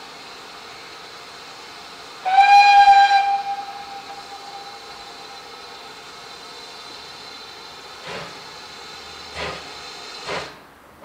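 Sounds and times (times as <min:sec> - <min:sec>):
steam locomotive whistle: 0:02.2 - 0:05.5.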